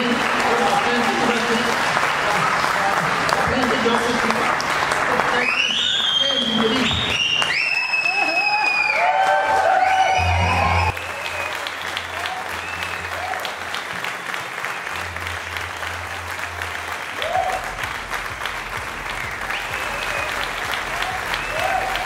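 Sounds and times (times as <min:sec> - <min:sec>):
audience applauding: 0:00.0 - 0:22.0
music: 0:10.2 - 0:22.0.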